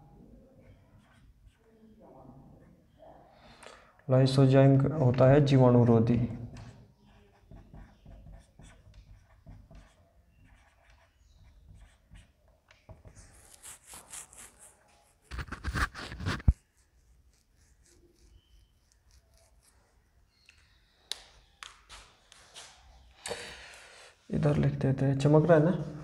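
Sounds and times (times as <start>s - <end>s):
marker squeaking on whiteboard: 0.6s - 1.9s, 5.3s - 23.1s.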